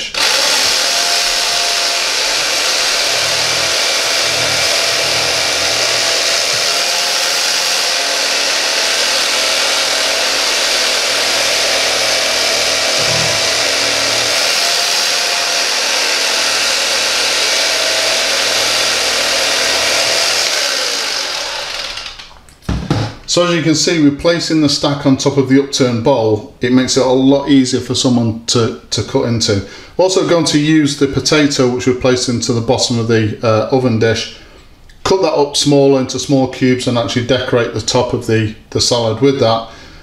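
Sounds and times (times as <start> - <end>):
electric carving knife buzzing: 0.0 - 22.4.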